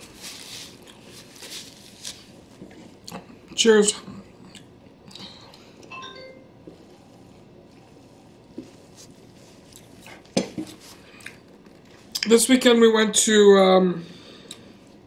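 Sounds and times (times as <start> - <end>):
brief ringing tone: 5.9 - 6.6.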